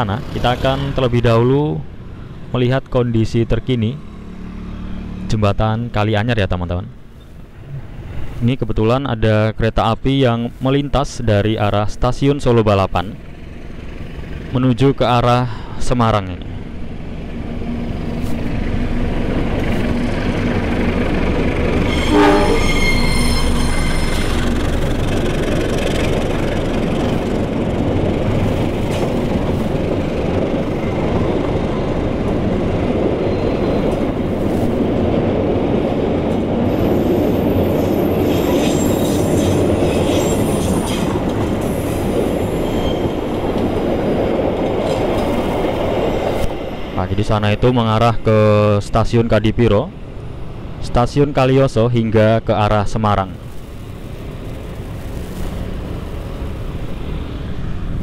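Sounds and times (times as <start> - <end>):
locomotive engine droning: 0.0 - 58.0
wheel squeals: 21.7 - 27.3, 33.2 - 34.2, 36.7 - 44.0
train horn: 21.9 - 24.4.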